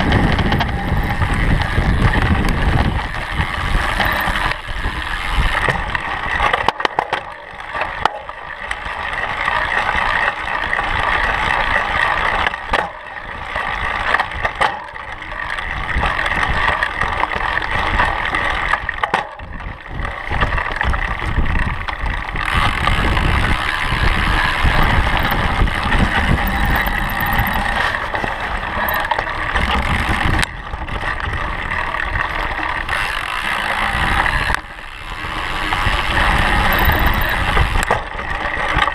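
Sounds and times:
wind on microphone: 0.0 - 6.4, 19.4 - 38.4
bike and mount rattling: 0.0 - 38.9
bike tyres on dirt: 0.0 - 38.9.

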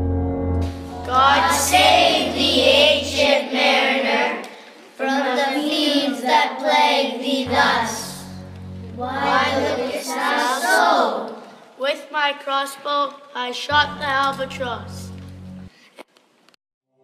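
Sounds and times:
sustained accompanying chord: 0.0 - 3.2, 7.4 - 10.6
children singing: 0.9 - 8.3, 8.9 - 11.4.

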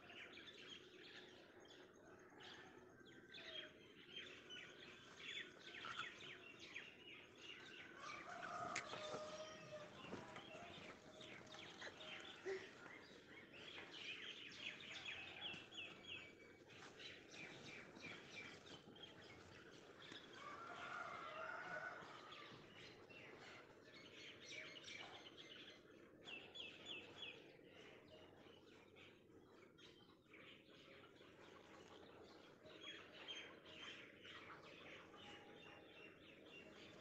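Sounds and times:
small birds chirping: 3.2 - 37.0.

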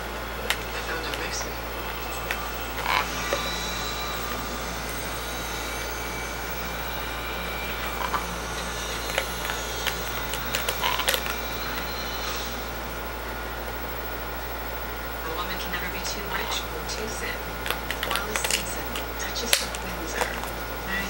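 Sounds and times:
steady low hum: 0.0 - 21.0
plastic bottle crackling and clicking: 0.4 - 3.6, 7.7 - 12.0, 17.6 - 20.6.

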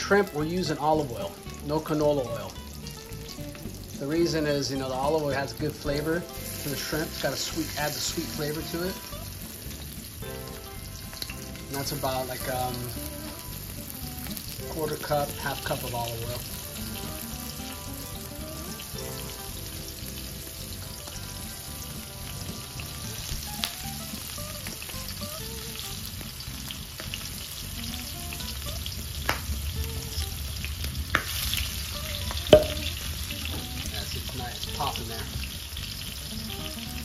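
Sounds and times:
shrimp sizzling in oil: 0.0 - 37.0.

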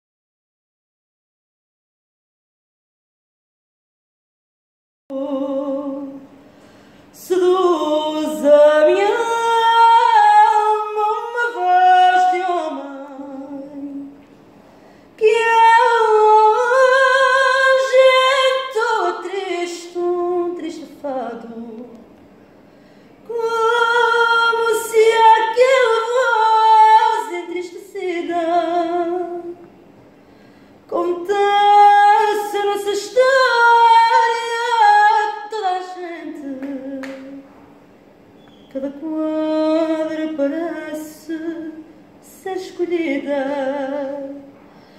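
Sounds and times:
woman singing unaccompanied: 5.1 - 6.4, 7.1 - 14.2, 15.2 - 22.0, 23.2 - 29.7, 30.9 - 37.5, 38.6 - 44.6.

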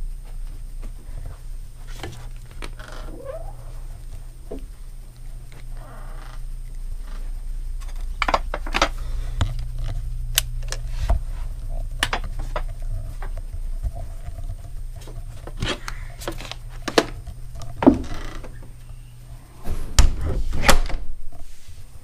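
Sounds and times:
footsteps and handling knocks: 0.1 - 5.8, 10.8 - 19.0
handheld camera rumble: 0.1 - 21.4.

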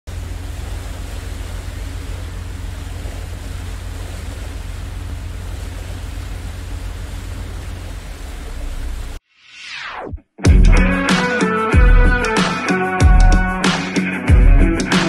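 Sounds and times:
deep rumble: 0.1 - 9.2
steady rushing noise: 0.1 - 9.2.

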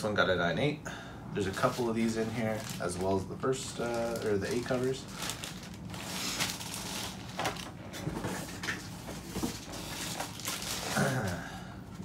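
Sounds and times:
plastic cases rustling: 1.6 - 11.0.

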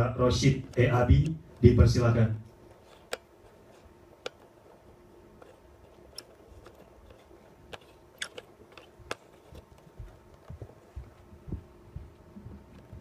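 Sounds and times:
soft low thumps: 9.9 - 13.0.

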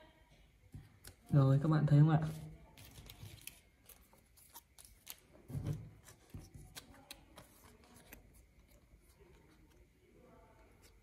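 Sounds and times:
paper rustling: 2.3 - 9.9.

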